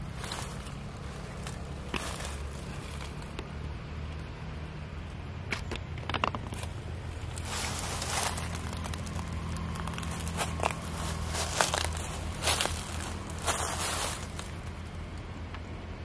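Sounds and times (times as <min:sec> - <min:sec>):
dry leaves crackling: 0:00.0 - 0:03.7, 0:06.6 - 0:15.4.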